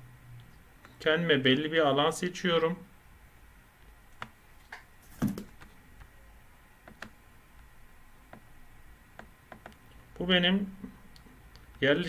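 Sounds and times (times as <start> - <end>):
computer mouse clicking: 6.8 - 7.2, 9.2 - 10.0.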